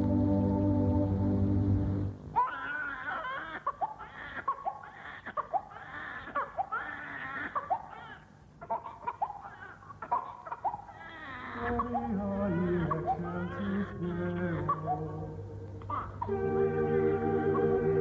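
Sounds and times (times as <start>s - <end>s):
held organ music: 0.0s - 2.2s, 15.1s - 18.0s
infant crying: 2.4s - 15.1s, 15.9s - 16.3s.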